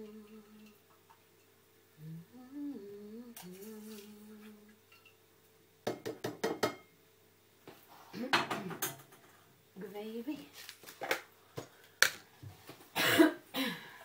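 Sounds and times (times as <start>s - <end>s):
person humming: 0.0s - 0.8s, 2.0s - 4.8s
metal spoon knocking on saucepan: 5.9s - 6.9s.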